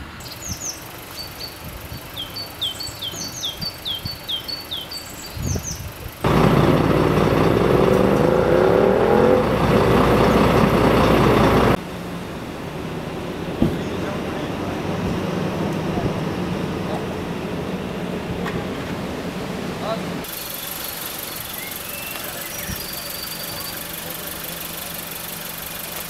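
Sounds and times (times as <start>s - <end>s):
small bird chirping: 0.2s - 6.2s, 20.3s - 26.0s
vehicle engine noise: 5.3s - 26.0s.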